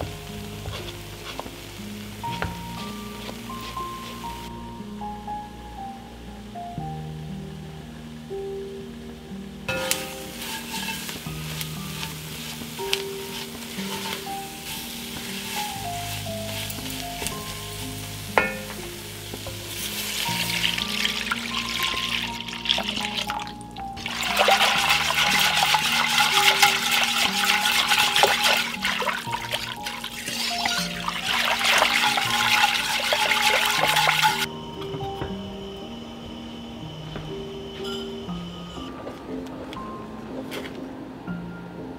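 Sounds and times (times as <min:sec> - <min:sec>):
wooden spoon stirring: 0:00.0 - 0:04.5, 0:09.7 - 0:34.5
roux sizzling in a pot: 0:00.0 - 0:05.2, 0:09.7 - 0:34.6
background music: 0:00.0 - 0:41.9
whisking sauce sloshing and scraping: 0:09.9 - 0:17.8, 0:19.1 - 0:34.5.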